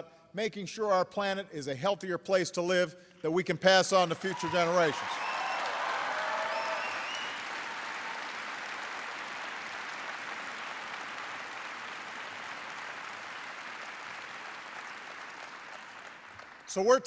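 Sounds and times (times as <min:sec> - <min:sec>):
large audience applauding: 0:04.0 - 0:17.0.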